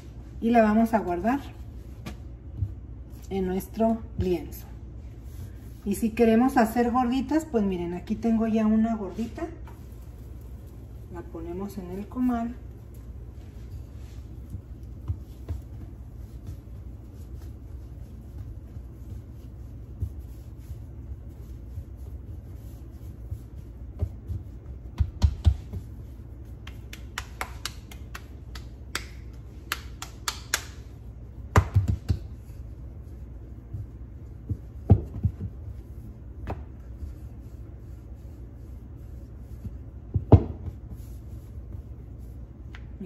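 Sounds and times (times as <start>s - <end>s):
steady low hum: 0.0s - 43.0s
rolling pin tapping on counter: 23.9s - 25.9s, 31.5s - 32.3s, 34.4s - 35.6s.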